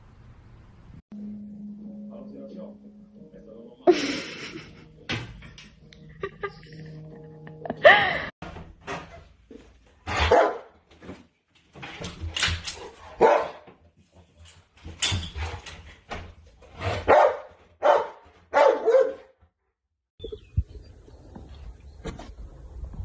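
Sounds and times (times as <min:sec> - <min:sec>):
dog barking: 0:10.1 - 0:10.7, 0:13.2 - 0:13.6, 0:16.9 - 0:19.4.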